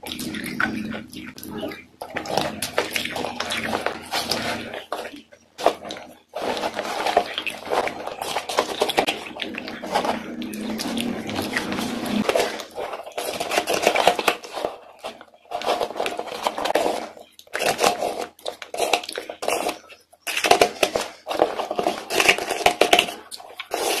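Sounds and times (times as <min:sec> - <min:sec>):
wet mouth eating sounds: 0:00.0 - 0:15.2.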